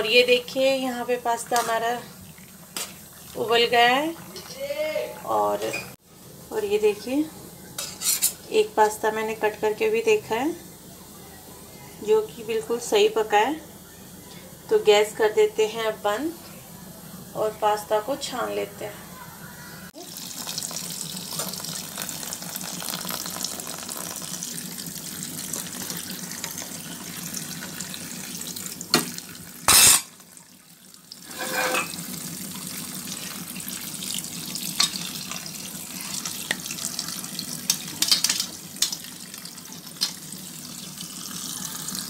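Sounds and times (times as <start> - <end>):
tap water running onto pasta: 0.5 - 5.6, 20.0 - 42.0.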